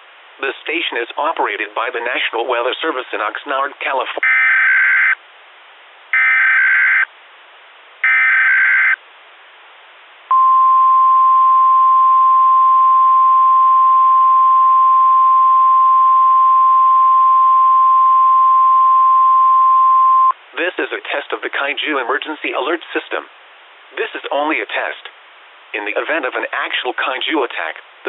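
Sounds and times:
screeching data bursts: 6.2 - 7.1, 8.0 - 9.0
steady warning alarm tone: 6.2 - 7.1, 8.0 - 9.0.

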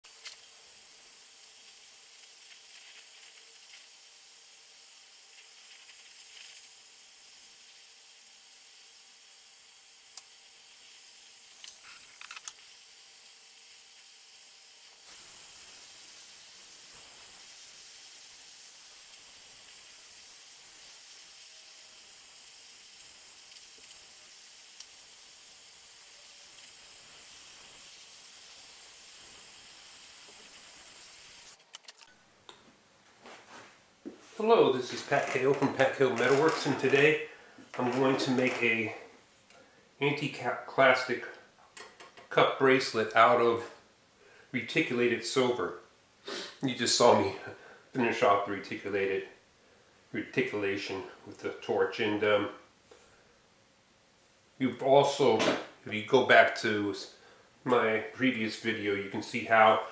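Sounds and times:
torch flame hissing: 0.0 - 31.6, 34.4 - 39.0.

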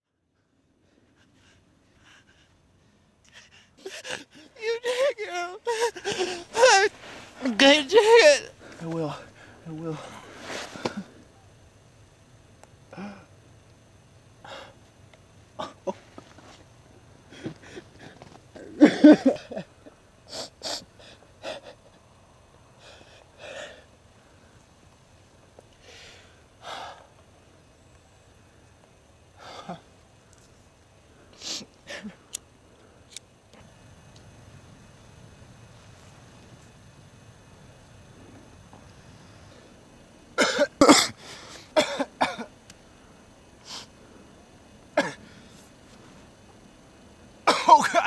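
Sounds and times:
person coughing hard: 18.6 - 19.7, 40.4 - 41.2, 41.8 - 42.5, 45.0 - 45.2, 47.5 - 48.0.

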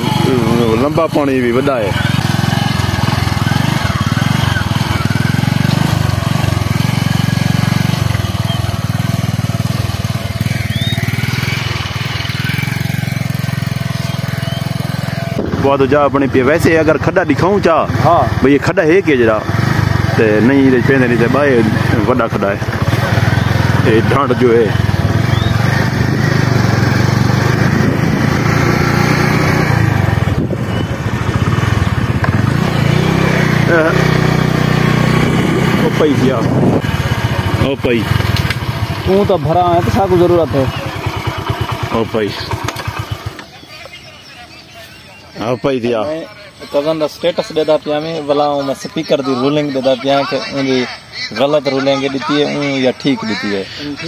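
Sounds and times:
small motorcycle engine running: 0.0 - 54.0.

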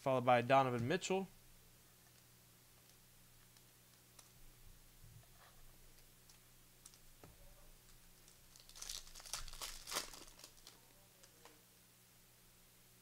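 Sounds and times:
plastic wrapper crinkling: 5.9 - 7.1, 7.9 - 11.6.

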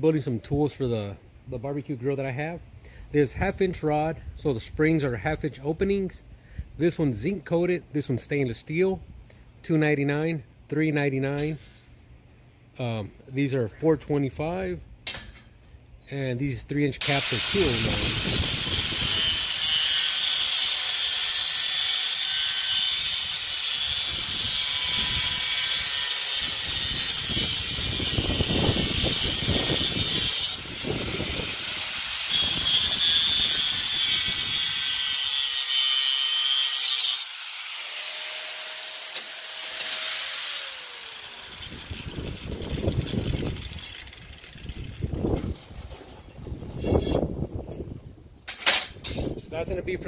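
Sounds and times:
angle grinder cutting steel: 17.0 - 45.1
wind buffeting microphone: 26.4 - 31.6, 41.6 - 50.0.

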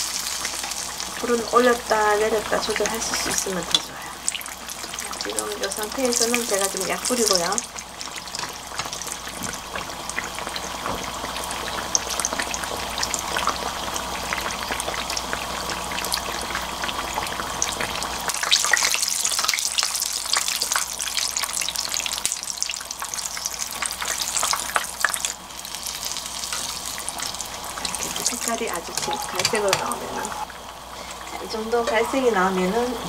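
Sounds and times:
hot oil sizzling and crackling: 0.0 - 33.0.

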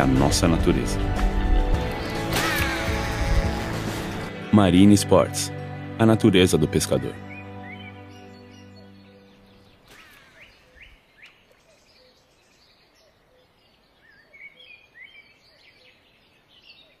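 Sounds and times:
faint birds chirping: 7.1 - 17.0.

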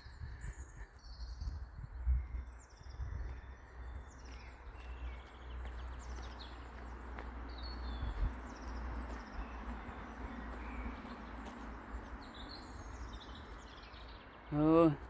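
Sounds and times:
small birds singing: 0.0 - 15.0.

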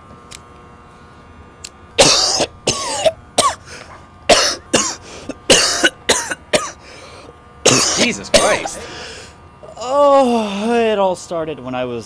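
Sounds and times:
man coughing: 2.0 - 6.8, 7.7 - 9.2.

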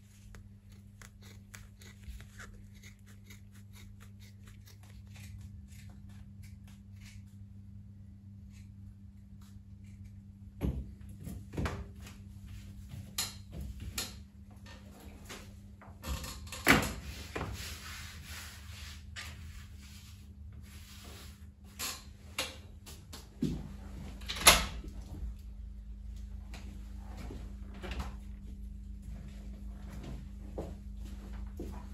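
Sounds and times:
low hum: 22.8 - 31.9.

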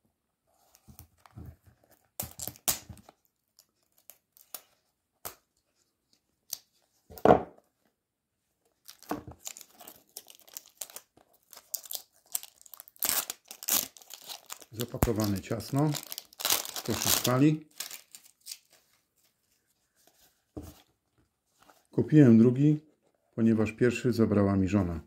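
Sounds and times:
packaging crinkling: 8.8 - 18.8.

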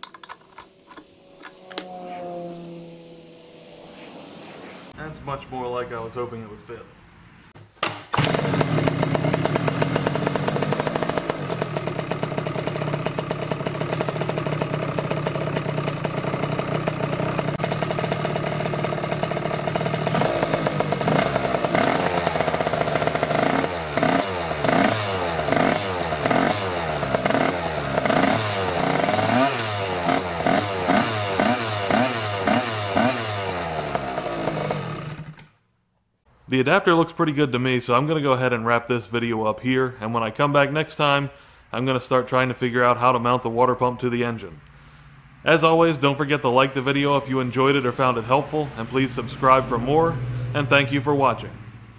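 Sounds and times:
scooter engine idling and revving: 0.0 - 3.5, 8.1 - 35.6.

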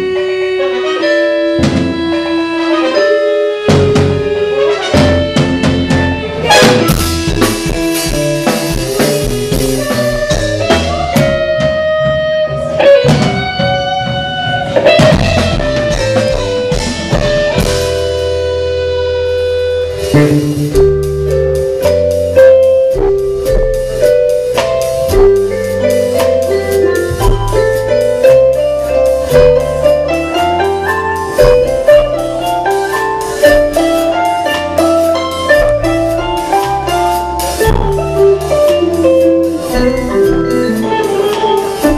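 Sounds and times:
brass: 0.0 - 11.0
drums: 0.0 - 41.9
live band music: 0.0 - 41.9.

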